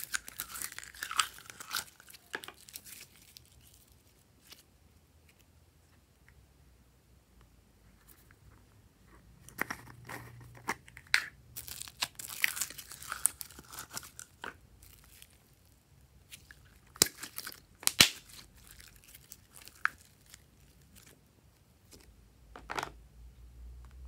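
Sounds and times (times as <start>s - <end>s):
slime crackling and tearing: 0.0s - 4.6s, 11.0s - 15.7s, 16.3s - 21.2s.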